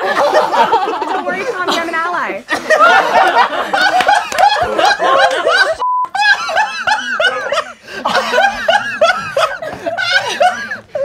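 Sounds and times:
group of people laughing: 0.0s - 11.0s
steady beep: 5.8s - 6.1s.

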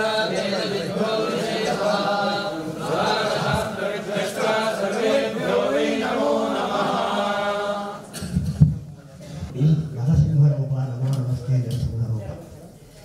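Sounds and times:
men chanting in unison: 0.0s - 8.1s.

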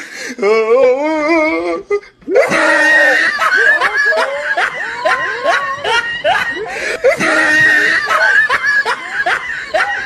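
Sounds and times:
high voice wailing: 0.8s - 10.0s
women laughing: 2.3s - 10.0s
women screaming and shrieking: 2.3s - 10.0s.

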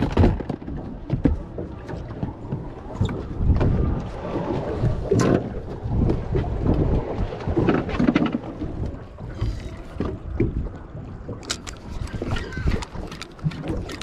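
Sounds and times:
water and hull noise: 0.0s - 14.0s
wind buffeting microphone: 0.0s - 14.0s.

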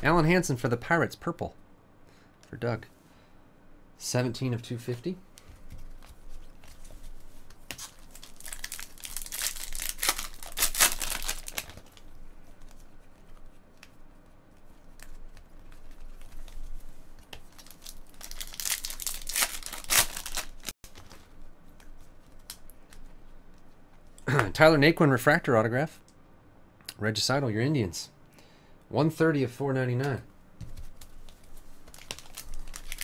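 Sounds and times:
cards rustling being flipped: 5.4s - 23.1s, 30.6s - 33.0s.

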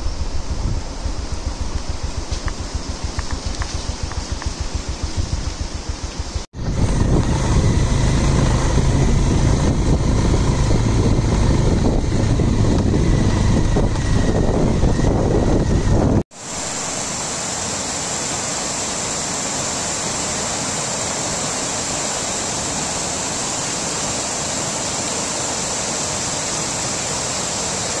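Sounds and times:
motorcycle engine running: 0.0s - 16.2s
fast-flowing river rushing: 16.4s - 28.0s.

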